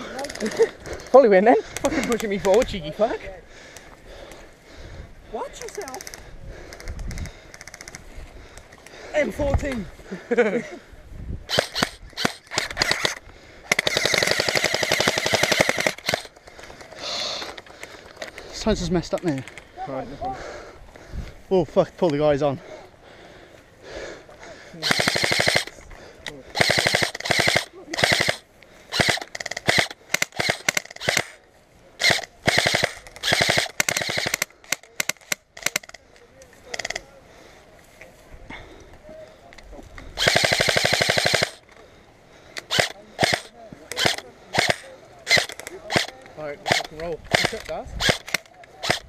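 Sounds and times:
airsoft rifle shots: 11.5s - 16.3s, 24.8s - 25.7s, 26.6s - 31.4s, 32.0s - 36.0s, 40.2s - 41.6s, 42.7s - 49.0s.

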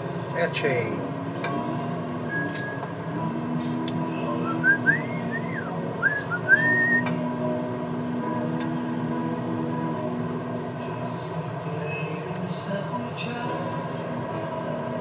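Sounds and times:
whistling sliding notes: 2.3s - 2.9s, 4.4s - 7.2s.

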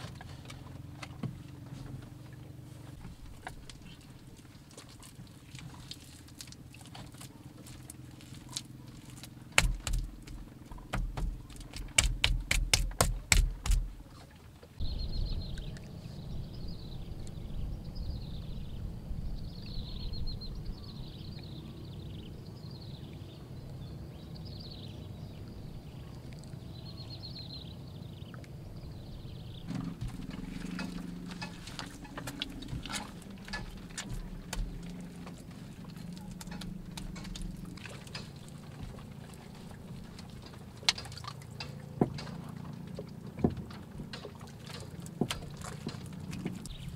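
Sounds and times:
hands scraping wet mud: 3.6s - 14.0s
hands slapping mud: 8.6s - 14.0s
low rumble: 14.8s - 40.6s.

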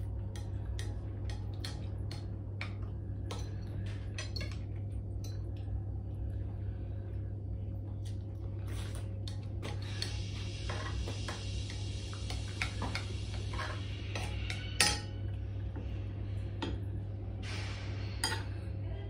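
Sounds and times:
steady low hum: 0.0s - 19.0s
cutlery clinking on ceramic bowls: 2.6s - 4.6s, 14.2s - 15.2s, 18.2s - 18.6s.

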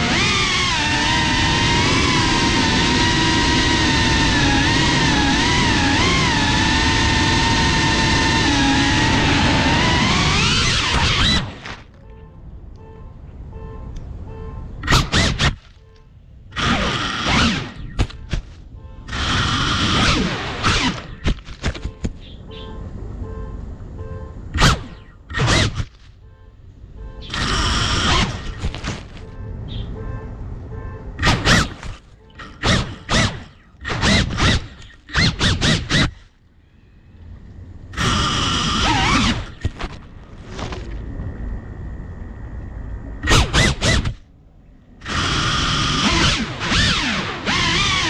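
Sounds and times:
quadcopter motors surging: 0.0s - 11.9s, 14.8s - 15.7s, 16.5s - 22.1s, 24.5s - 26.0s, 27.2s - 28.9s, 31.2s - 36.4s, 37.8s - 40.0s, 42.6s - 44.3s, 45.0s - 48.0s
propellers hitting leaves and grass: 16.6s - 22.2s, 27.3s - 29.3s, 38.8s - 41.1s.

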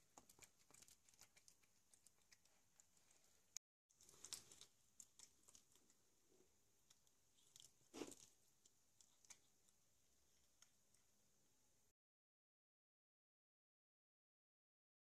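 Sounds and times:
food crunch: 0.0s - 3.2s, 3.9s - 6.0s, 6.8s - 9.8s
cats chewing and licking: 0.0s - 11.4s.

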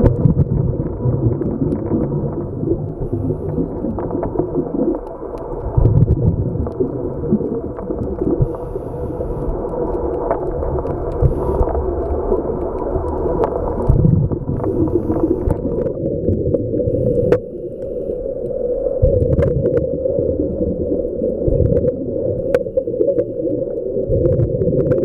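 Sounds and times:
small clicks: 2.8s - 14.2s
regulator exhaust bubbles: 5.6s - 8.6s, 9.5s - 17.4s, 19.0s - 25.0s
faint inhalation hiss: 8.4s - 9.7s, 11.2s - 11.8s, 14.6s - 15.8s, 16.8s - 19.0s.

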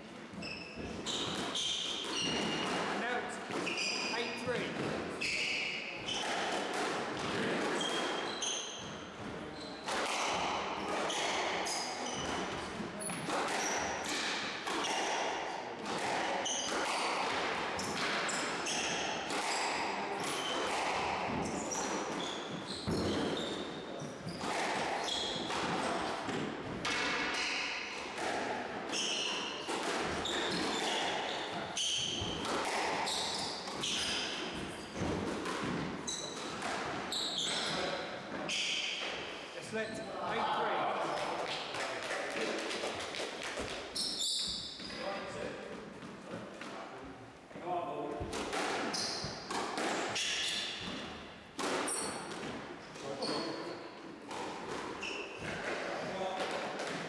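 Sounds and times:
shoes squeaking on wooden floor: 0.2s - 6.4s, 7.3s - 15.1s, 17.8s - 25.6s, 28.9s - 40.5s, 43.6s - 46.4s, 48.8s - 52.3s, 53.0s - 53.8s, 54.9s - 55.7s
squash ball cracking off walls: 48.2s - 51.0s.

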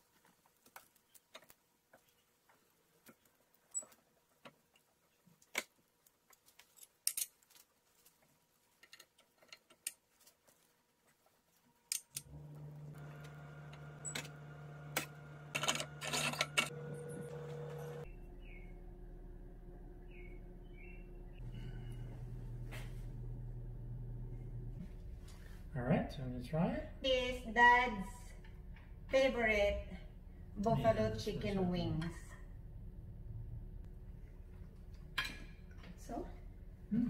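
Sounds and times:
steady low hum: 12.3s - 37.0s.

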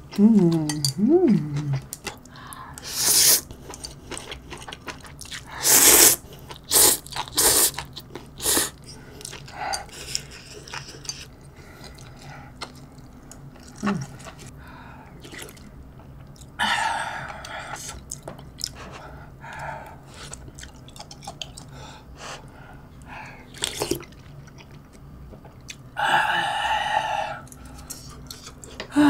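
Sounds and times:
quiet chewing: 0.1s - 5.6s, 6.2s - 14.6s, 17.3s - 21.8s, 22.4s - 25.9s
noodles being slurped: 5.2s - 11.3s.

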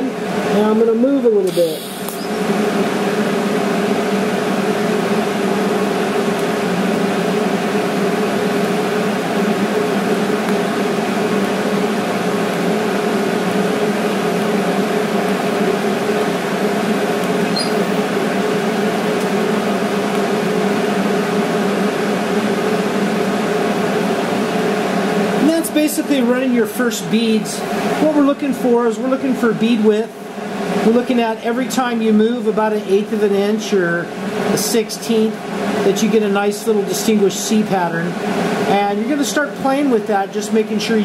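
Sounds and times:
welding arc hissing and buzzing: 0.0s - 23.0s.

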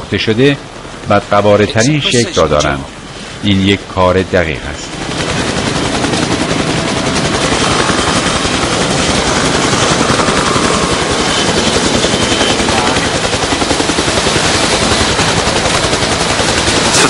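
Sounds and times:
helicopter rotor chopping: 0.6s - 17.0s.

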